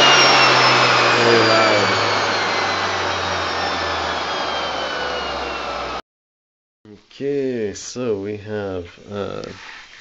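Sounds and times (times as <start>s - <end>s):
electric motor winding down: 0.0s - 6.0s.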